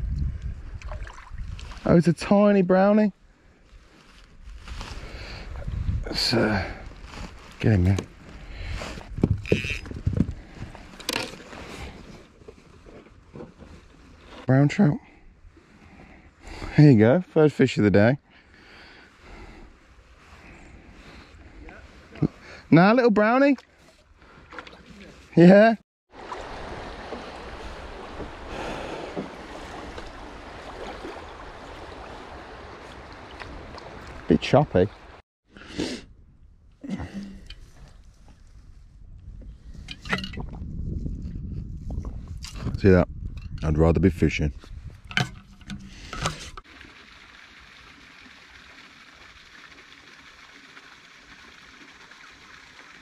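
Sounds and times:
wind on microphone: 0.0 - 1.8, 4.4 - 6.8, 8.4 - 10.9, 37.5 - 46.6
light wind: 0.0 - 25.4, 26.1 - 53.0
flowing river water: 0.8 - 1.9, 26.1 - 35.2, 45.3 - 53.0
water slapping against kayak hull: 26.1 - 34.3.

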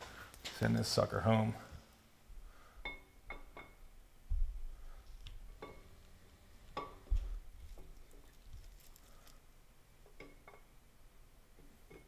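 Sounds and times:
dull low thumps: 4.2 - 4.8.

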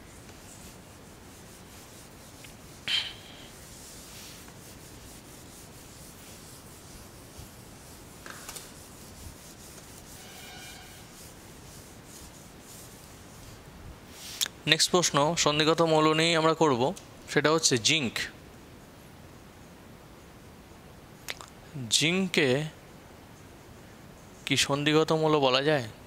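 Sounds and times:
eraser scrubbing whiteboard: 0.0 - 14.4.

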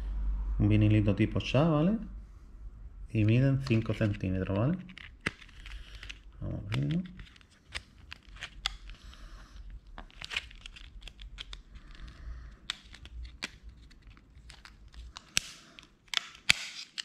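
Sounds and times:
plastic tray crinkling: 3.6 - 17.0
plastic snapping: 4.8 - 17.0.

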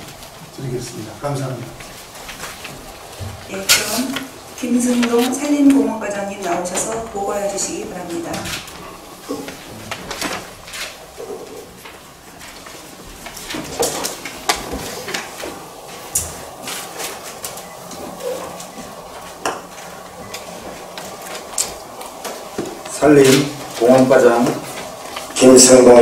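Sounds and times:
low room hiss: 0.0 - 26.0
papers and objects handled: 1.8 - 7.1, 8.2 - 26.0.

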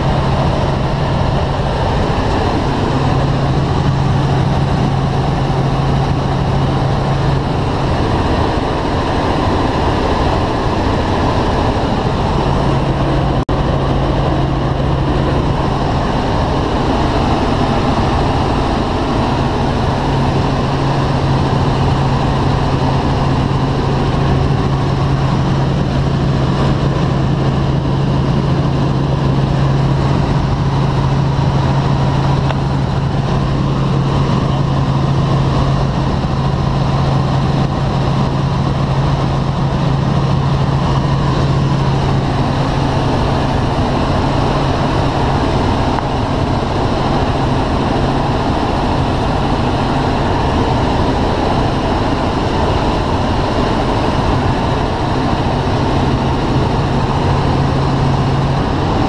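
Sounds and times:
helicopter cabin drone: 0.0 - 59.0.

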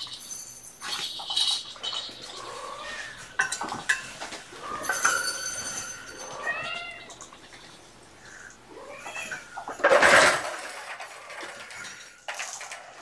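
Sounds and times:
kittens mewing: 2.2 - 3.5, 8.7 - 10.3.

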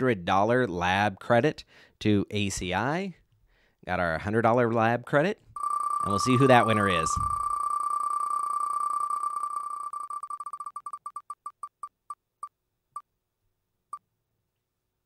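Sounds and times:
beeping ticks slowing down: 5.6 - 11.9.

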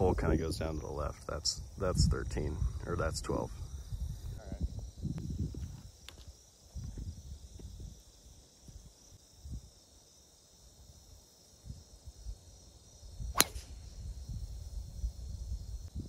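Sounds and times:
golf club striking ball: 13.3 - 13.8.

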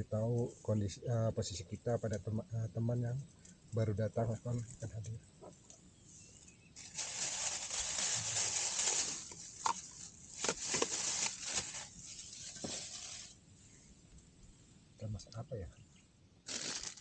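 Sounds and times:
rustling of camping gear: 4.4 - 13.8, 16.5 - 17.0.

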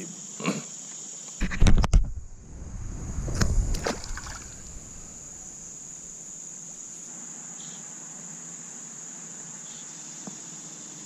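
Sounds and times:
crickets droning: 0.0 - 11.0
water splashing: 1.4 - 6.2.

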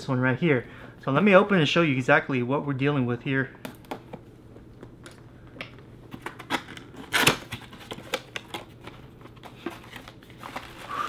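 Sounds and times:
cardboard box rustling and scraping: 9.5 - 11.0.

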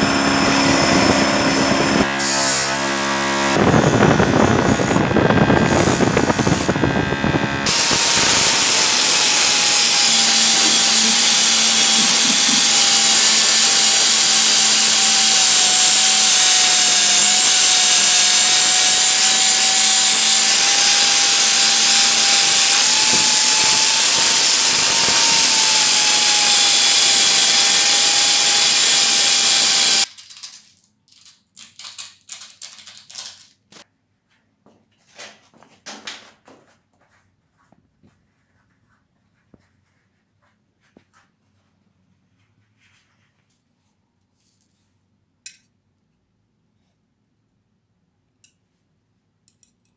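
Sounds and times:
angle grinder grinding metal: 0.0 - 30.1.

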